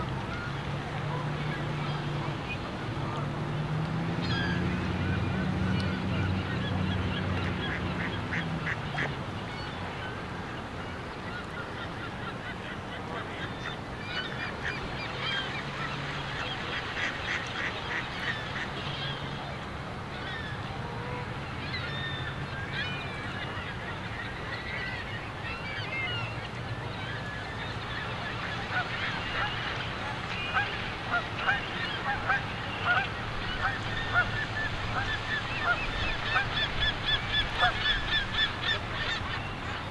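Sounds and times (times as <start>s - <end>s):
geese honking: 30.3s - 39.3s.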